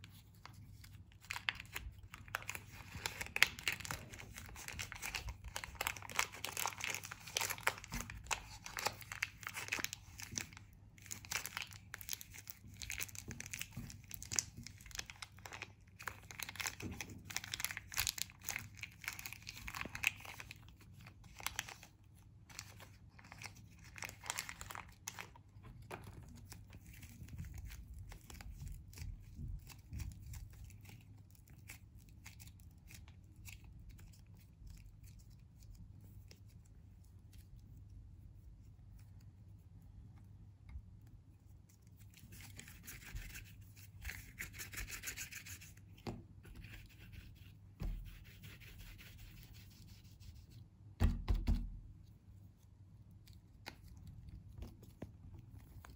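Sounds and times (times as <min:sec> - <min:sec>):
plastic wrapper crinkling and tearing: 0:00.0 - 0:36.5
plasticine kneaded by hand: 0:00.0 - 0:55.9.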